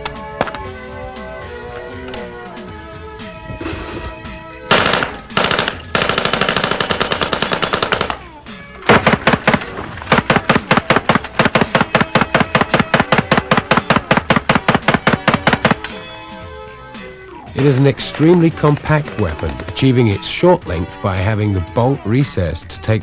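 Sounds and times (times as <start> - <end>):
background music: 0.0 - 23.0
submachine gun automatic fire: 4.7 - 8.3, 8.9 - 16.0
bullets striking sheet metal: 8.9 - 16.0.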